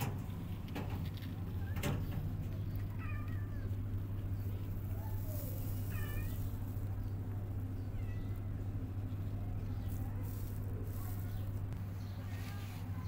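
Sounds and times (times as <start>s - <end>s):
steady low hum: 0.0s - 13.0s
kittens mewing: 2.8s - 11.6s.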